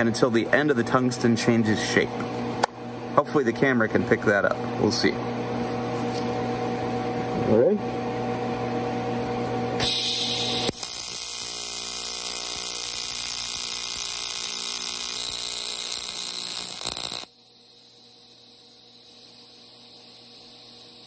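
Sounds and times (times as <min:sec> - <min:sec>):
welding arc buzzing: 0:09.8 - 0:21.0
welding arc hiss: 0:09.8 - 0:21.0.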